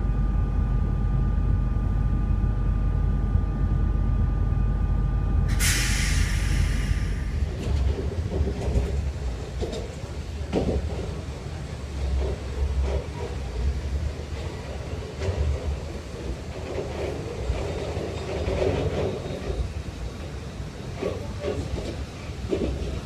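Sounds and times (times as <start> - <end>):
train low rumble: 0.0 - 23.0
wheels clicking over rail joints: 7.5 - 19.8, 20.9 - 23.0.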